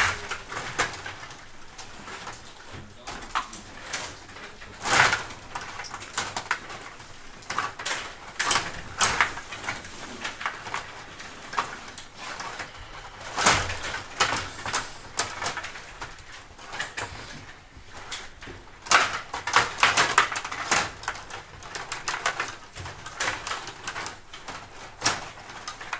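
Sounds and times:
plastic players and puck clacking: 0.0 - 25.9
table hockey rods sliding: 3.2 - 18.4.

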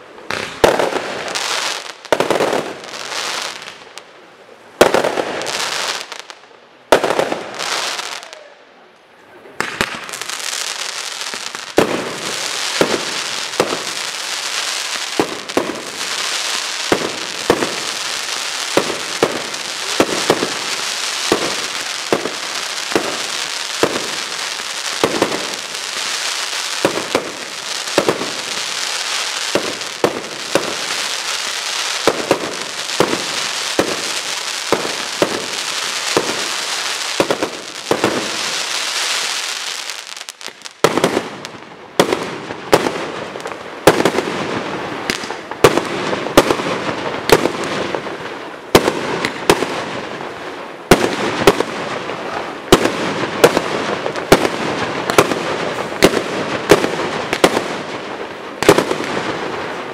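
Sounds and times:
sharp fireworks bangs: 0.0 - 3.8, 4.8 - 6.3, 6.9 - 8.3, 9.6 - 59.9
fireworks bursting: 0.0 - 4.2, 4.8 - 8.5, 9.6 - 59.9
fireworks hiss: 9.6 - 41.3.

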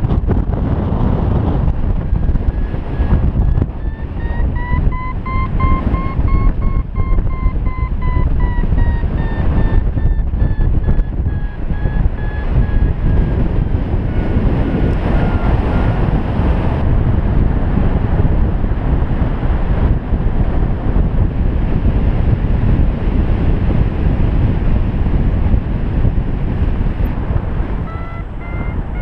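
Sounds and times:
wind buffeting microphone: 0.0 - 29.0
variometer beeping: 2.1 - 16.2, 27.9 - 29.0.

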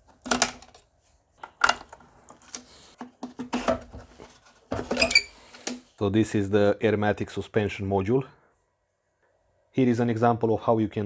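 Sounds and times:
plastic connector clicks and rattles: 0.1 - 0.8, 1.4 - 2.6.

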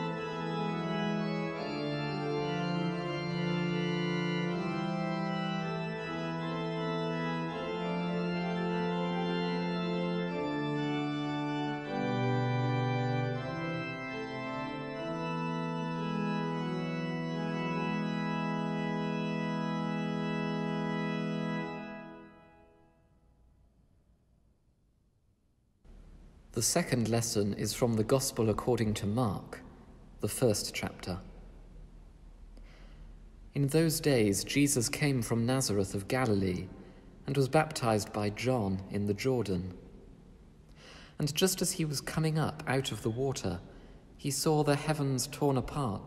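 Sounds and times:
organ pedal bass line: 0.0 - 22.4
pipe organ chords: 0.0 - 23.0, 32.7 - 46.0.

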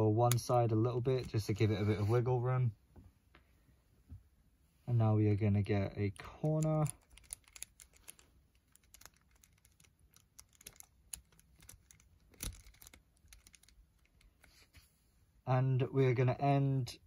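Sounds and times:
plastic cube pieces clicking: 6.2 - 14.3.

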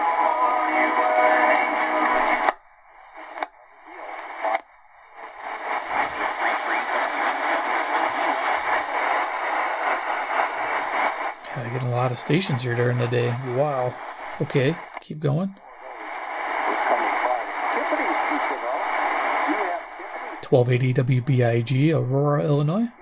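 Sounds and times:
music on am radio: 0.0 - 15.0, 15.6 - 23.0
weak radio station under static: 0.0 - 23.0
faint clicks: 3.2 - 4.7.

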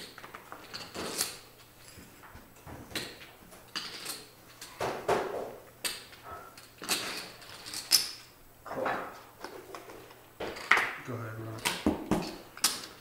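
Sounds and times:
poker chips clacking: 5.8 - 8.2.

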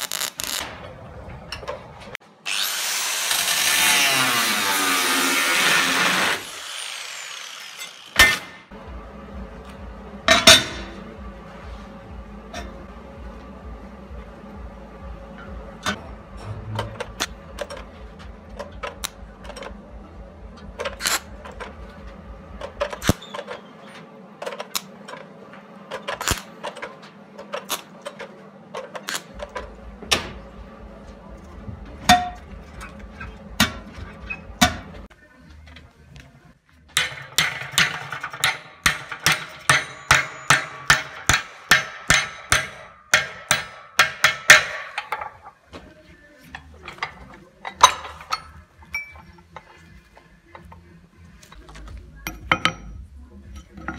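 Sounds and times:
low steady hum: 8.2 - 23.5.

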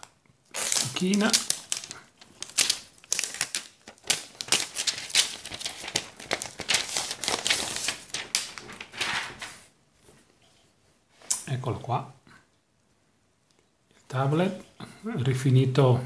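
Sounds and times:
plastic wrapping crinkling: 0.0 - 9.7.

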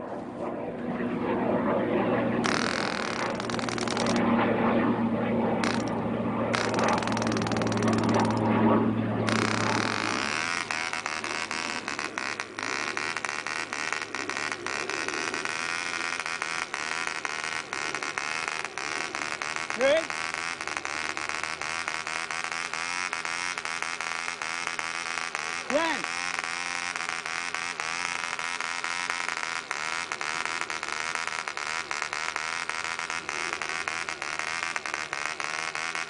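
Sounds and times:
model engine running: 0.8 - 36.0.

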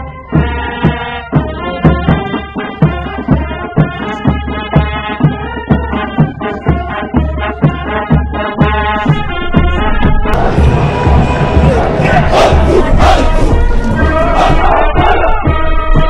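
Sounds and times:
brass band melody: 0.0 - 16.0
steady drum beat: 0.0 - 16.0.

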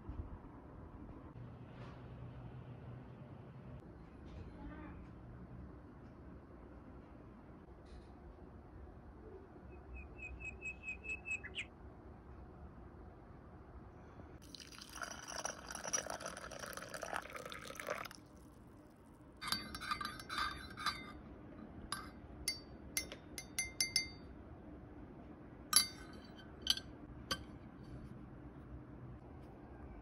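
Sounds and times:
liquid pouring into teacup: 14.4 - 18.7
teaspoon clinking against cup: 19.4 - 21.2, 21.9 - 24.3, 25.8 - 27.5.

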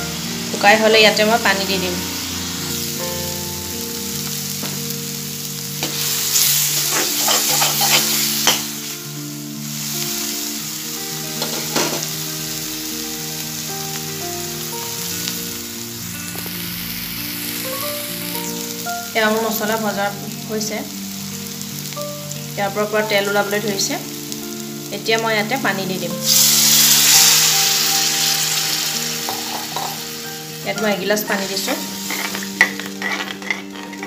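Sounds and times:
masala paste sizzling in oil: 0.0 - 34.0
soft background tune: 0.0 - 34.0
spatula scraping and stirring: 6.7 - 8.6, 32.1 - 34.0.

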